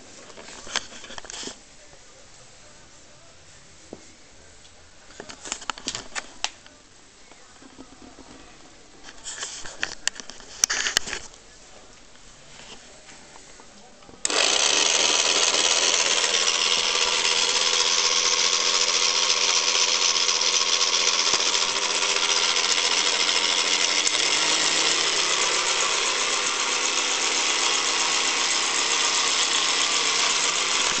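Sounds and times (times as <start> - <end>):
gear whine: 14.2 - 31.0
hand mixer motor whirring: 14.2 - 31.0.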